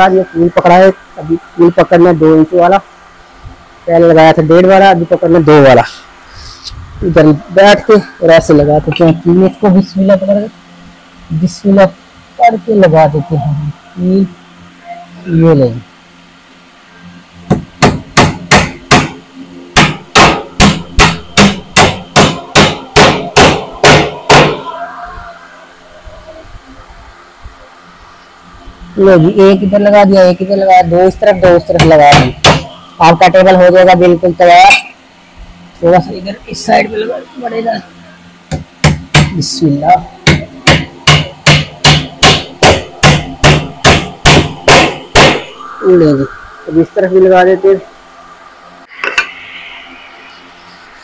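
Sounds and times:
hammer striking nails into wood: 17.5 - 19.2, 19.8 - 24.6, 31.8 - 32.7, 38.5 - 39.4, 40.2 - 45.4.

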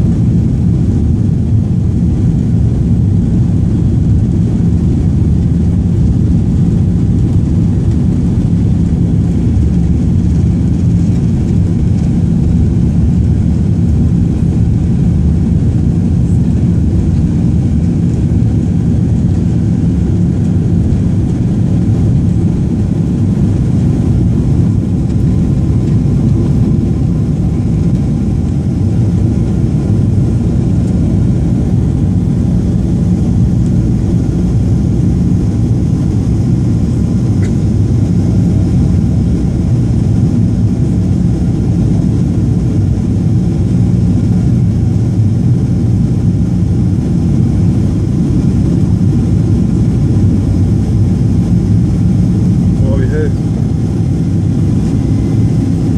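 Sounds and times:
takeoff roll rumble: 0.0 - 41.6
jet engines at takeoff thrust: 0.0 - 55.9.

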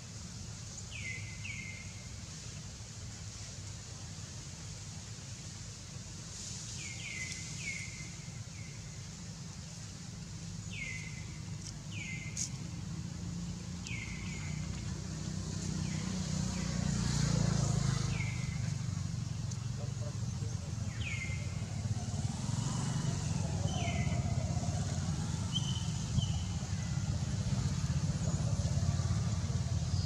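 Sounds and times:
passing traffic engine hum: 10.0 - 30.0.

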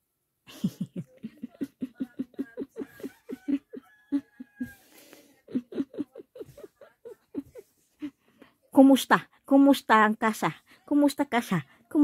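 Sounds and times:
person laughing in quick bursts: 0.5 - 4.9, 5.5 - 8.0.

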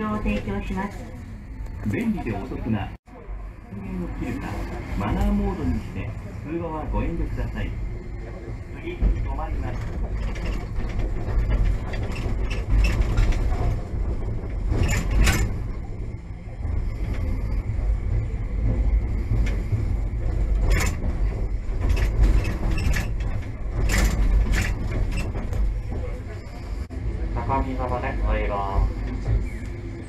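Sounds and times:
tram wheels rumbling: 0.0 - 30.0
wheels clacking over rail joints: 6.9 - 26.9.

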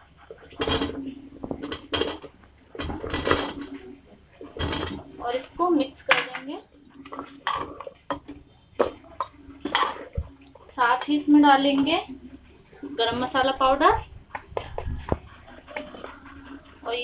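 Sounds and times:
ladle and bowl clattering on pot: 0.3 - 13.6.

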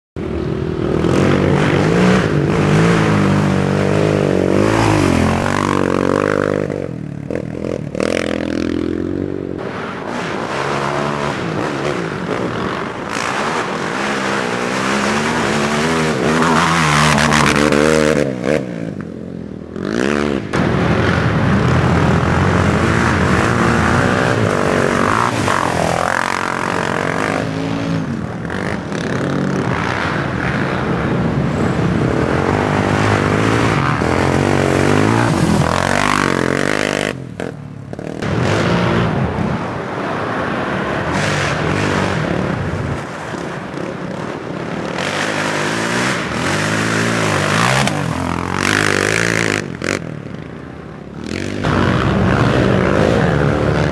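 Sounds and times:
quad engines revving: 0.2 - 39.6, 41.0 - 53.9.

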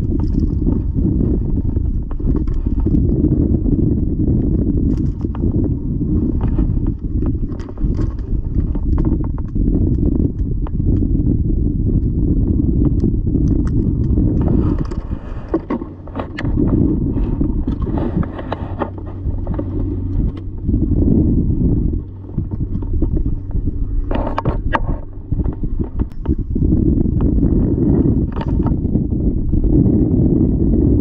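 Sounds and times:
wind buffeting microphone: 0.0 - 31.0
fishing pliers and rod rattling: 7.4 - 9.5.

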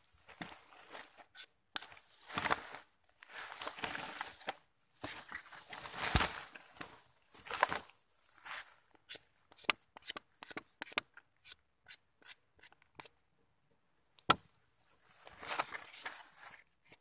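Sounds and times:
rustling: 0.0 - 8.9, 14.9 - 16.7.

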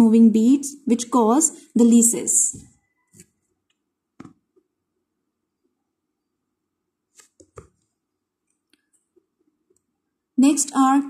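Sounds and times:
computer mouse or keyboard clicks: 7.2 - 7.8.

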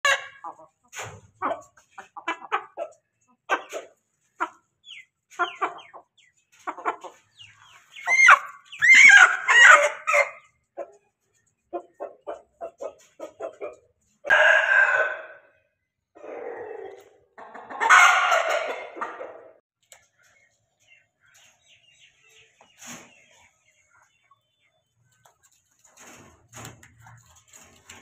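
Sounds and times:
hen clucking: 0.0 - 15.6, 16.2 - 28.0
hen crowing: 14.3 - 15.4.

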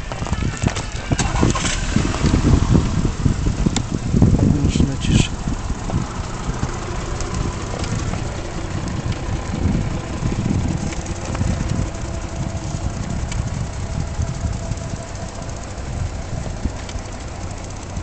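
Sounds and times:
wheelchair rolling over bricks: 0.0 - 2.8.

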